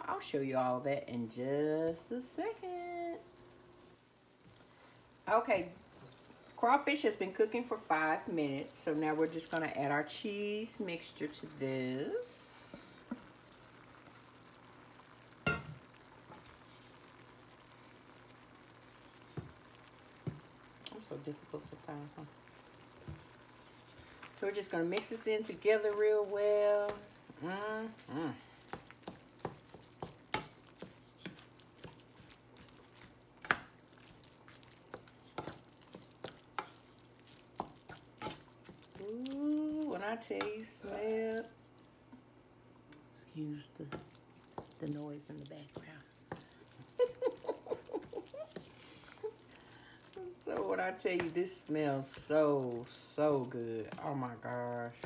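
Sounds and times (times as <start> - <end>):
food sizzling in a pan: 0.0 - 55.0
utensil clanking on cookware: 15.4 - 15.8.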